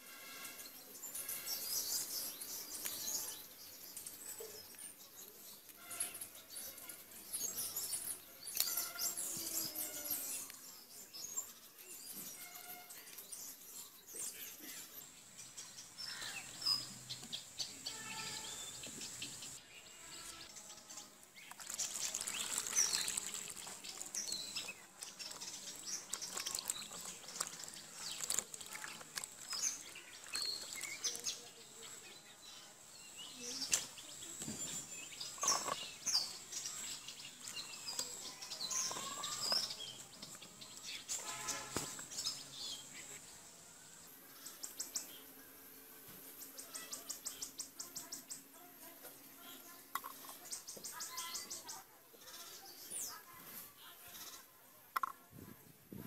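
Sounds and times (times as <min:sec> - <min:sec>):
small birds chirping: 0:00.2 - 0:56.0
knife scraping gourds: 0:08.4 - 0:09.3, 0:35.2 - 0:36.4
water splashing in a bowl: 0:21.4 - 0:31.2.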